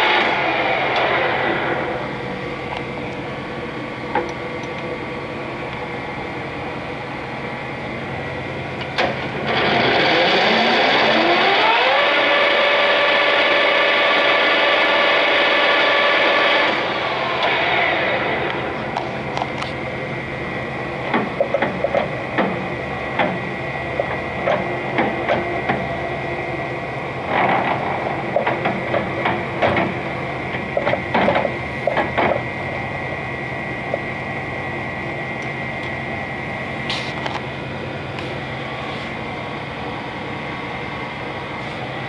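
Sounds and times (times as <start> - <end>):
lathe running with whine: 0.0 - 42.0
irregular clicks and knocks: 27.4 - 32.4.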